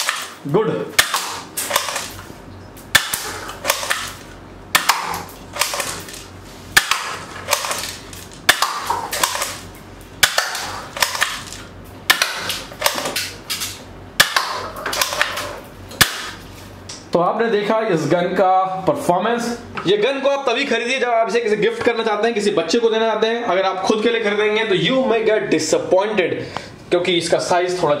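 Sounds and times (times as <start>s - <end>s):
toy airsoft gun shots: 0.0s - 2.2s, 2.9s - 6.2s, 6.8s - 9.6s, 10.2s - 13.4s, 14.2s - 15.4s, 16.0s - 16.4s.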